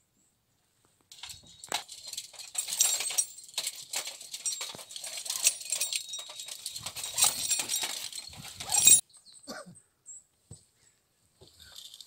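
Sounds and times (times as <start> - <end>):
close rustling and scraping: 1.1 - 9.0.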